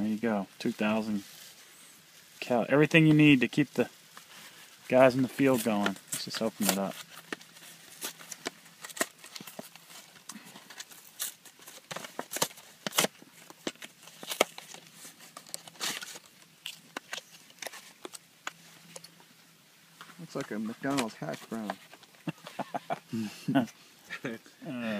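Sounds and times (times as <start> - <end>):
packaging crinkling and rustling: 4.0 - 19.3, 19.9 - 22.9.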